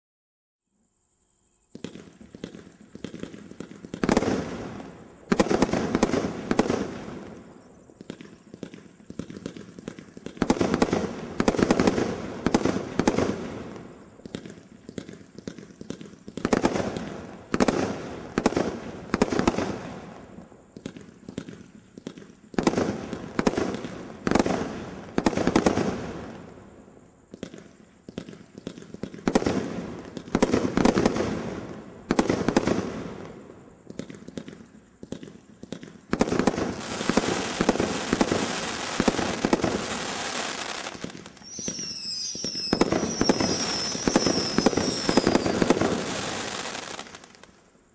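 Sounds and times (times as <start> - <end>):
fireworks shots: 1.7 - 47.6
crackling fireworks stars: 1.7 - 47.9.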